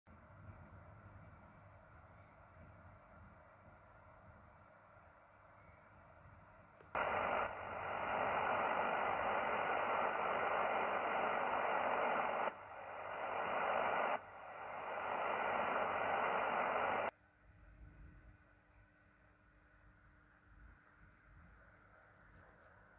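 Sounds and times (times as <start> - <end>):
radio receiver hiss: 6.8 - 17.1.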